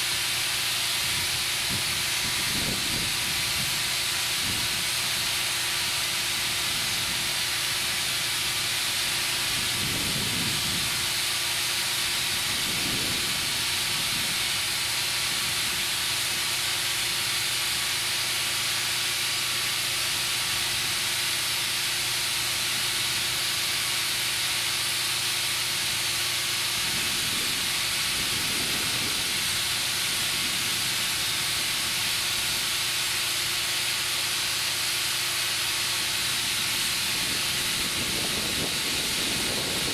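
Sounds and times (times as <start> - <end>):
compressed air hissing into tire: 0.0 - 39.9.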